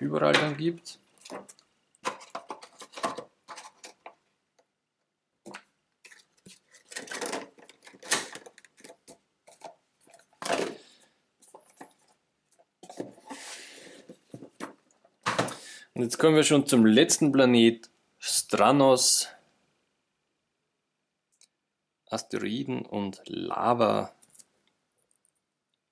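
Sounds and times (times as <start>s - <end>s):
board game pieces clicking and rustling: 5.5s - 10.9s
box lid set down: 10.4s - 10.8s, 14.4s - 15.6s.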